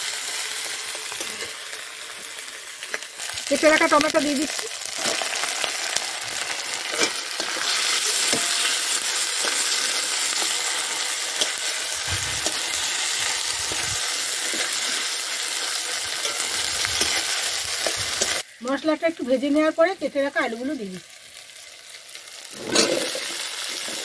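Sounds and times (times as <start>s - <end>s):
masala sizzling in hot oil: 0.0s - 24.0s
steel spatula scraping and stirring: 0.9s - 1.7s, 4.9s - 18.4s, 22.5s - 24.0s.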